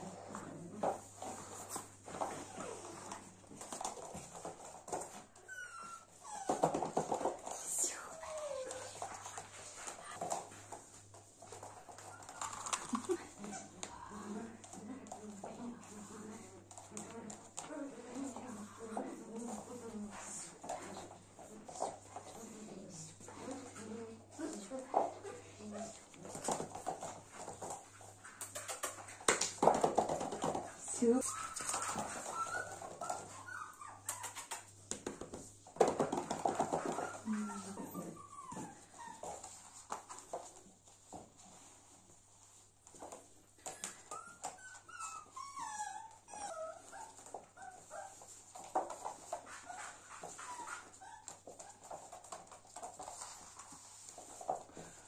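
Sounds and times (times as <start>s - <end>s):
puppy claws clicking on floor: 0.0s - 55.0s
puppy whining and growling: 5.4s - 9.6s, 31.2s - 34.8s, 36.4s - 39.6s, 43.7s - 48.4s.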